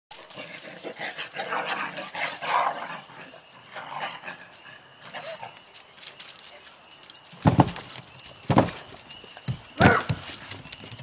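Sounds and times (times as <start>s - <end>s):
dogs barking and yipping: 0.1s - 6.1s, 8.6s - 11.0s.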